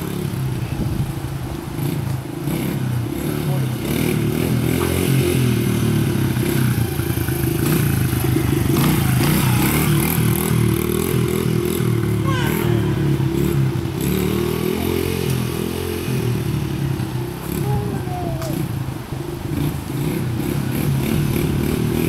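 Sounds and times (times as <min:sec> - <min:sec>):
dirt bike engine revving: 0:01.8 - 0:22.0.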